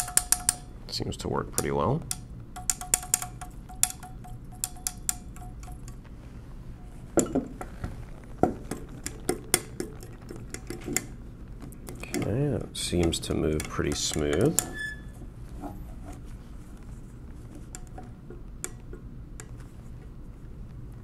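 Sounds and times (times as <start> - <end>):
mechanical calculator clicking: 1.6 - 5.7.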